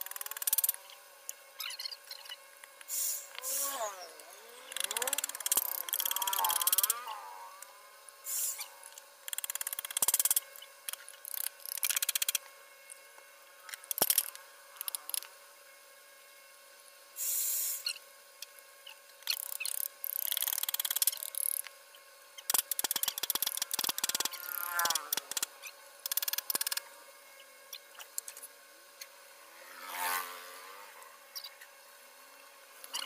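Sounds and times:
tool clicks: 0:04.7 - 0:06.9.

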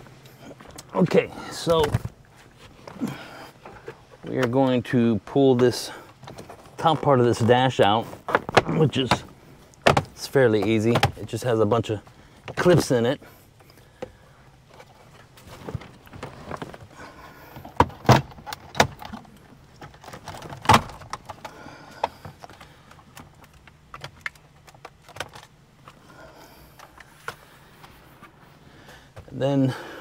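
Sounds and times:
plastic rattling and handling: 0:00.6 - 0:04.8, 0:05.5 - 0:13.0, 0:13.6 - 0:28.4.

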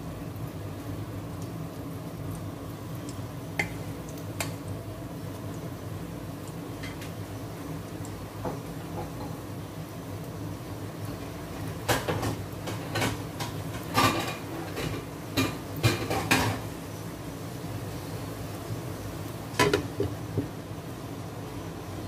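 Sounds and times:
kitchenware clattering: 0:13.9 - 0:16.6, 0:19.6 - 0:20.5.

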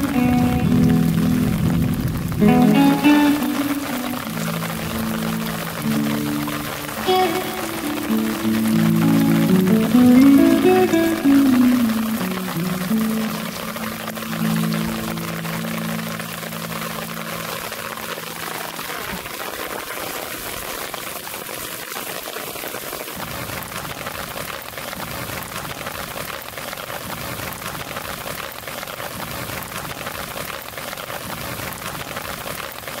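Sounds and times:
low music chord: 0:00.0 - 0:04.4
steady rain hissing: 0:00.0 - 0:33.0.

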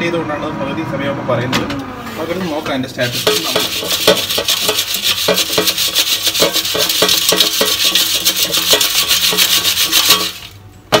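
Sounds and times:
potato slices rattling in fryer basket: 0:03.0 - 0:11.0.

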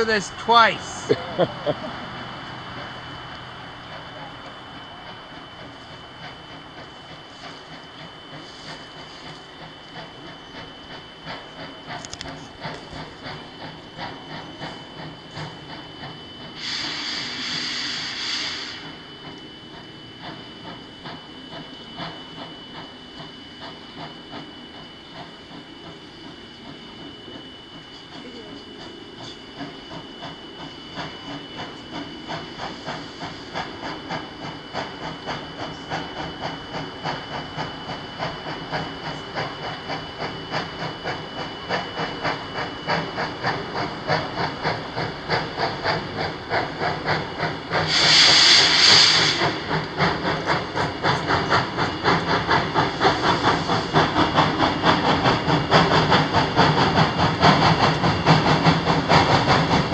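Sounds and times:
steam hissing: 0:00.0 - 0:59.9
steam locomotive chuffing: 0:00.0 - 0:59.9.

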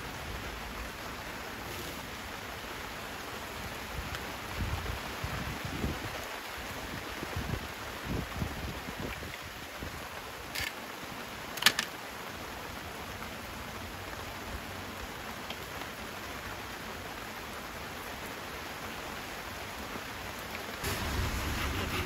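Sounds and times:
rain patter: 0:00.0 - 0:22.0
wood fire crackling: 0:20.1 - 0:22.0.

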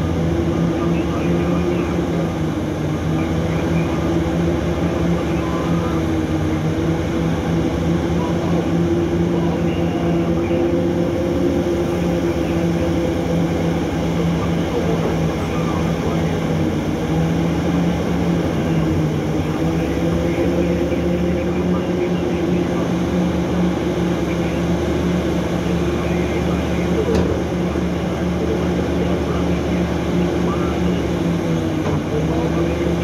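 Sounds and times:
heavy diesel engine drone: 0:00.0 - 0:33.0.

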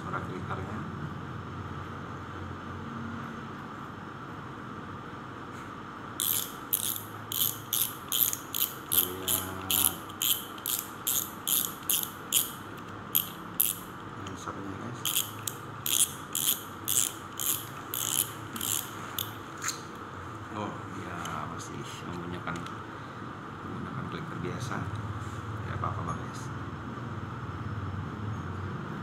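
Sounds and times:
fishing reel clicking: 0:06.2 - 0:13.9, 0:15.0 - 0:19.4.

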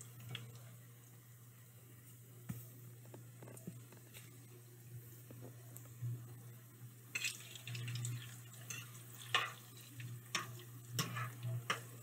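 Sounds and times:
utensil scraping a frying pan: 0:08.2 - 0:12.0.

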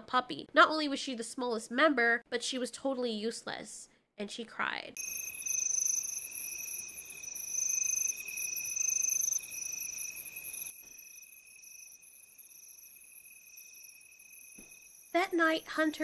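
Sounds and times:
crickets trilling: 0:05.0 - 0:16.0.

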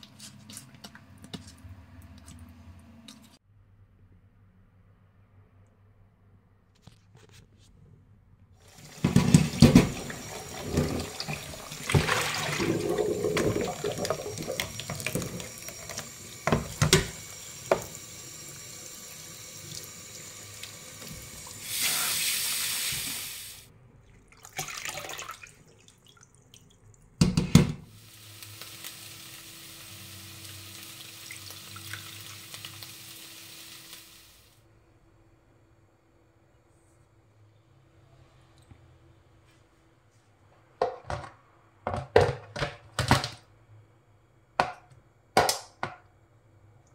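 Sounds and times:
tap water running into sink: 0:08.7 - 0:21.9, 0:24.3 - 0:27.6, 0:29.9 - 0:33.2.

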